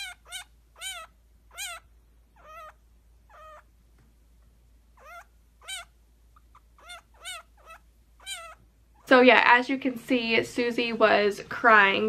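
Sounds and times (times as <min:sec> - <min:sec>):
baby chinchilla crying: 0:00.0 - 0:03.8, 0:04.9 - 0:09.1.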